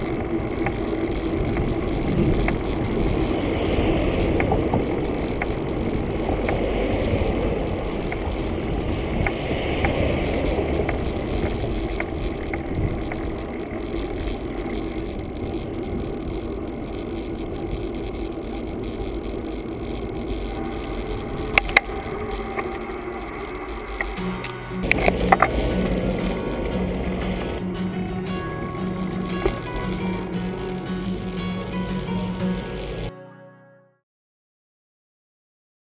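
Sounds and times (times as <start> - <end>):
sharp clicks: 0.0 - 27.6
bicycle rolling on paved road: 0.0 - 33.1
wind noise: 0.0 - 33.1.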